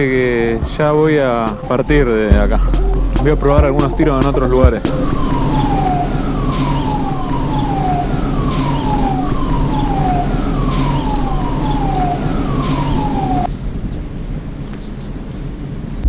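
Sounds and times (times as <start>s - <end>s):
siren gliding down: 0.0s - 13.5s.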